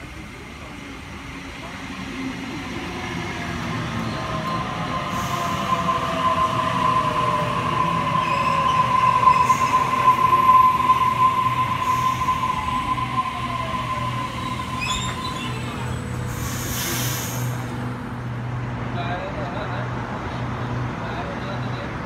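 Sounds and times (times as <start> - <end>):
high squeal from train: 2.4 - 17.9.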